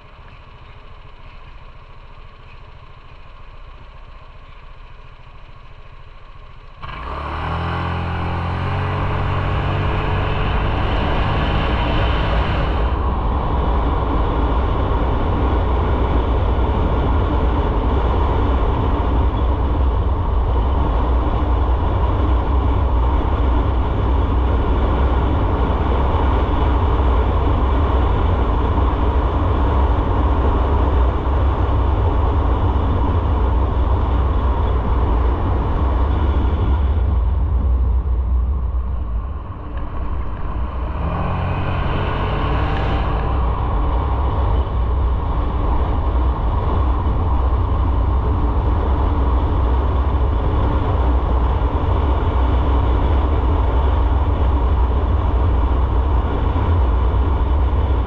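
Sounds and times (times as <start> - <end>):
motorcycle engine pulling away: 2.2 - 19.7, 39.2 - 54.3
wind noise: 6.8 - 58.0.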